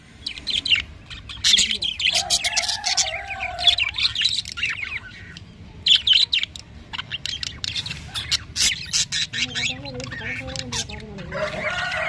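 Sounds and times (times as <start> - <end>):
budgerigars chirping and chattering: 0.0 - 12.0.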